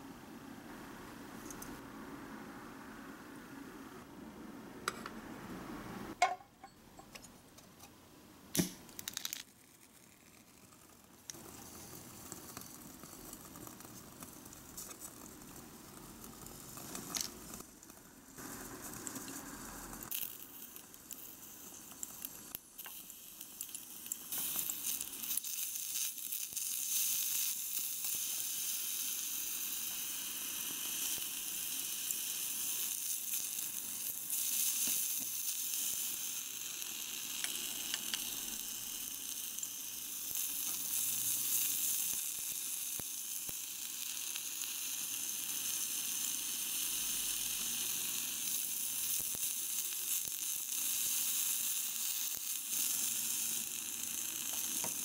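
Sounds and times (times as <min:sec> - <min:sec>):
sizzling in a small saucepan: 0:08.6 - 0:55.0.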